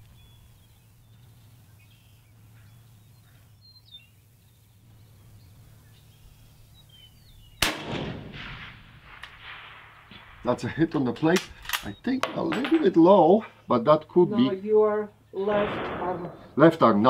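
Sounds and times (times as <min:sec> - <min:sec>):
faint bird chirps: 0:00.0 - 0:07.6
rifle shot echoing: 0:07.6 - 0:10.5, 0:15.4 - 0:17.0.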